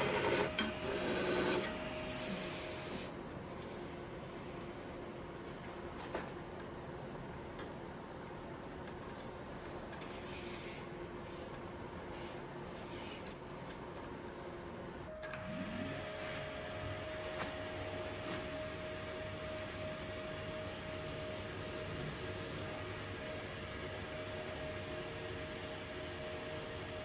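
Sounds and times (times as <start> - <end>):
wood lathe motor whine: 0.0 - 2.0.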